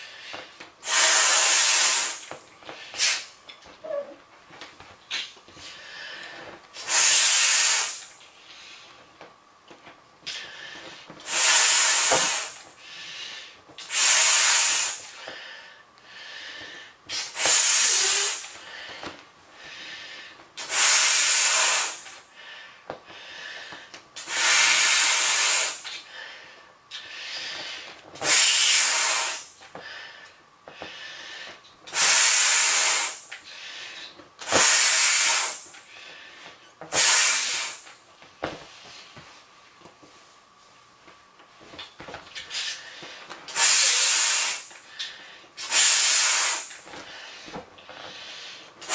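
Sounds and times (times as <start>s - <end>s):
exhales blowing up beach ball: 0.8s - 2.3s, 6.8s - 8.0s, 11.3s - 12.6s, 13.8s - 15.2s, 17.1s - 18.8s, 20.6s - 22.2s, 24.2s - 26.0s, 26.9s - 29.6s, 31.9s - 33.3s, 34.4s - 35.7s, 36.9s - 37.9s, 43.5s - 47.3s
quiet breathing: 5.6s - 6.6s, 15.1s - 17.0s, 18.0s - 20.4s, 22.2s - 24.0s, 29.7s - 31.7s.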